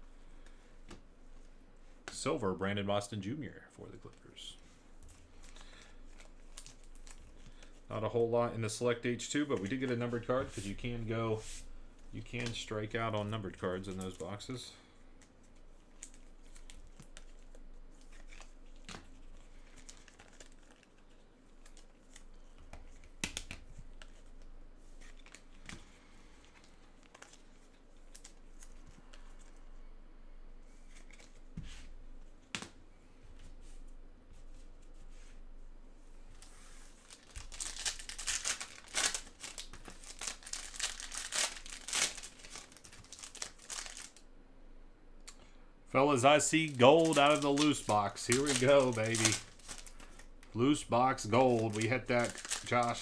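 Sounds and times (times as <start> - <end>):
trading cards rustling: 4.1 - 8.1, 15.4 - 29.6, 30.7 - 31.9, 36.2 - 44.2, 46.0 - 53.0
foil card pack tearing: 37.1 - 44.2, 46.3 - 50.2, 51.2 - 53.0.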